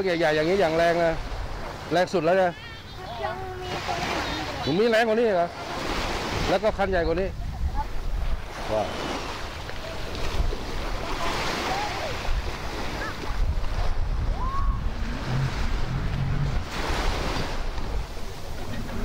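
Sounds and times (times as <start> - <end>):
surf washing on beach: 0.0 - 19.0
wind buffeting microphone: 6.7 - 19.0
distant voices: 7.8 - 19.0.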